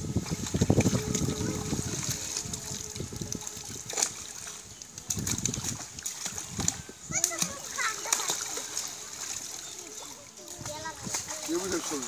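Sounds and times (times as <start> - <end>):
water splashing and pouring: 0.0 - 12.0
water streaming from buckets: 0.0 - 12.0.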